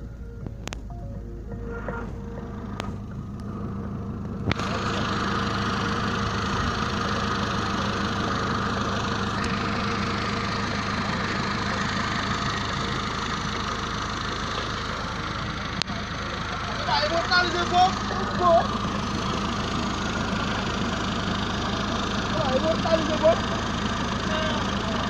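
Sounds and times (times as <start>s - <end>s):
car engine at low revs: 0.0s - 25.0s
road and wind noise: 0.0s - 25.0s
click: 0.4s - 0.9s.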